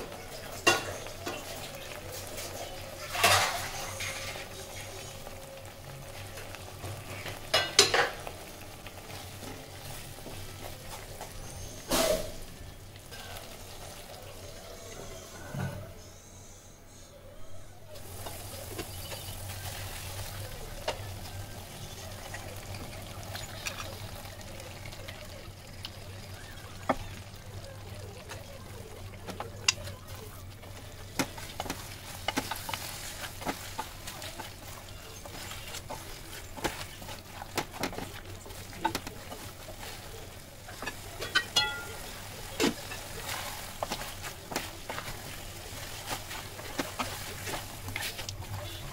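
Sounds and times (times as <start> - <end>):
wooden spatula scraping a pan: 0.0 - 5.3, 29.4 - 48.9
curry sizzling and bubbling: 0.0 - 16.3, 17.4 - 48.9.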